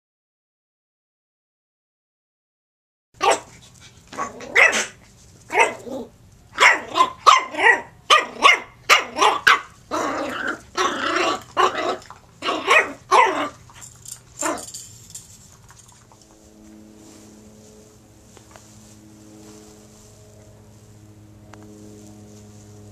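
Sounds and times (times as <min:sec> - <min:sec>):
puppy barking: 0:03.2 - 0:13.6, 0:14.4 - 0:14.7
puppy growling: 0:04.1 - 0:14.8.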